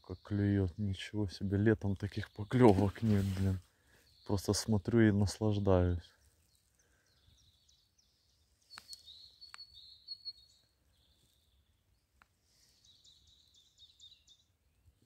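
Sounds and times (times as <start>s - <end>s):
small birds twittering: 0.0s - 15.0s
faint sharp clicks: 8.7s - 9.7s, 12.2s - 12.4s.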